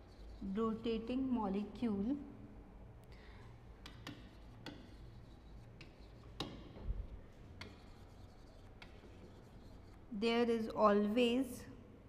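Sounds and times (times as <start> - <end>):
chalk tapping and scraping: 0.0 - 0.9, 3.8 - 10.1
low room hum: 0.0 - 12.0.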